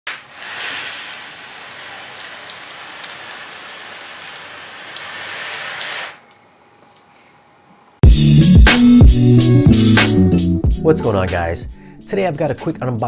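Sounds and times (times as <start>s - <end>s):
steady rushing hiss: 0.1s - 6.2s.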